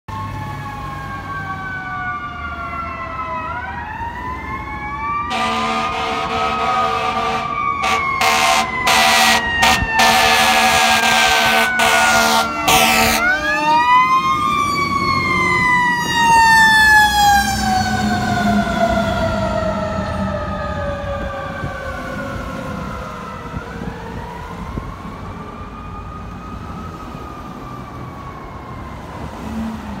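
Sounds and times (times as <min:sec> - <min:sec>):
fire truck sirens wailing: 0:00.1 - 0:30.0
air horn blasts: 0:05.3 - 0:13.7.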